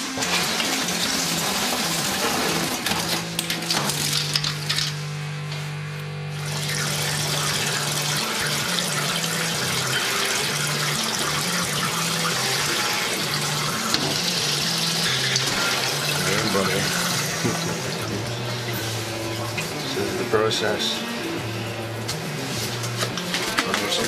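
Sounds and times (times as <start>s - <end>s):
water running from bathtub tap: 0.0s - 5.0s, 6.4s - 19.8s
low two-pitch hum: 2.2s - 23.3s.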